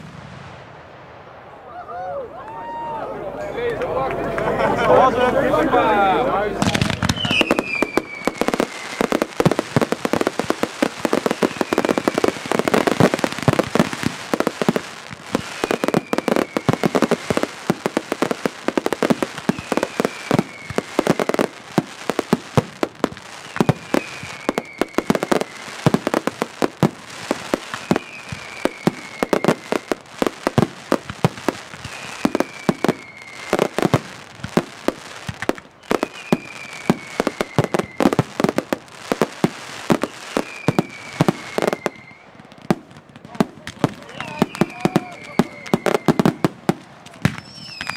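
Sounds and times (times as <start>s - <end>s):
firecrackers banging rapidly: 6.6s - 41.9s
falling whistle: 7.1s - 9.3s, 11.2s - 13.1s, 15.4s - 17.2s, 19.5s - 21.4s, 23.4s - 25.8s, 27.8s - 30.0s, 31.8s - 33.8s, 35.8s - 38.3s, 40.0s - 42.3s, 44.0s - 46.5s, 47.4s - 47.9s.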